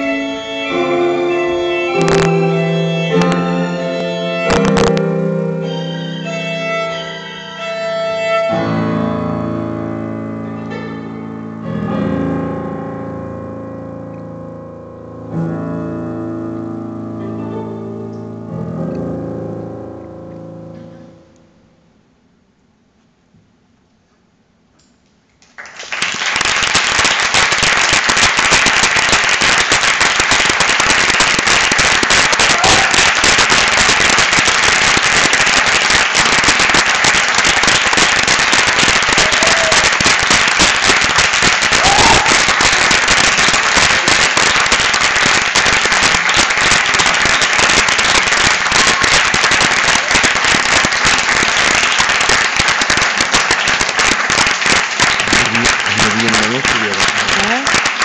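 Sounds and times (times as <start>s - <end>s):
audience applauding: 25.4s - 58.0s.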